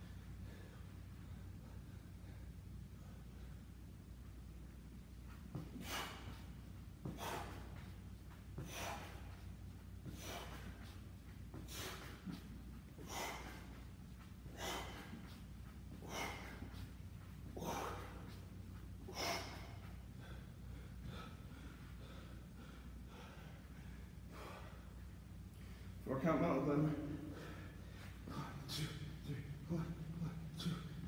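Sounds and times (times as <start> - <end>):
man exhaling forcefully: 5.8 - 6.4, 7.1 - 7.7, 8.6 - 9.2, 13.0 - 13.7, 14.5 - 15.3.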